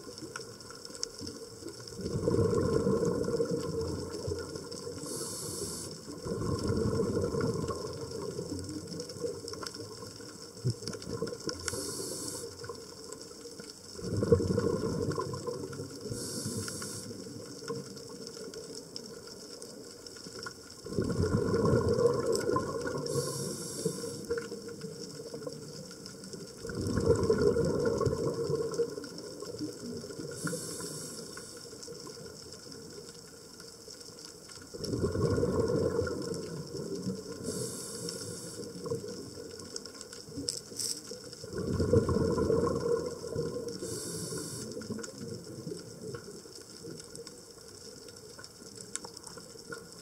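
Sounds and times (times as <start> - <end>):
exhaled bubbles gushing: 1.7 - 13.1, 13.9 - 18.7, 20.8 - 32.5, 34.7 - 40.5, 41.2 - 47.3
regulator inhalation hiss: 5.0 - 6.1, 11.6 - 12.7, 16.0 - 17.2, 23.0 - 24.4, 30.3 - 31.8, 37.4 - 38.8, 43.8 - 44.8.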